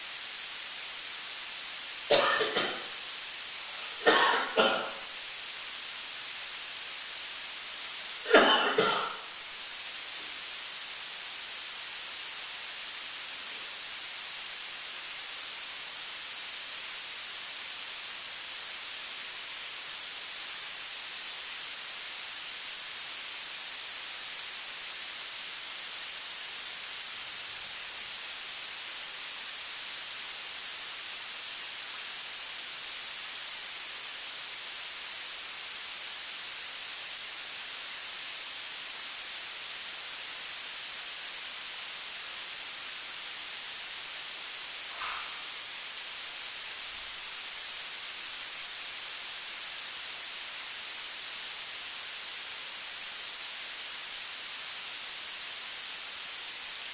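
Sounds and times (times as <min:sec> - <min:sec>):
steady hiss: 0:00.0 - 0:56.9
man coughing: 0:02.1 - 0:02.9, 0:04.0 - 0:05.1, 0:08.3 - 0:09.2.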